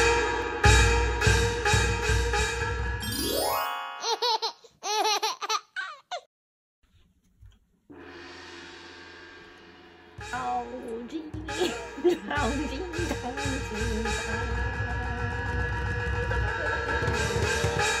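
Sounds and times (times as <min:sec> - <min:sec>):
intro music with heavy drums: 0:00.0 - 0:03.0, 0:07.9 - 0:18.0
background music: 0:00.0 - 0:03.8, 0:07.9 - 0:18.0.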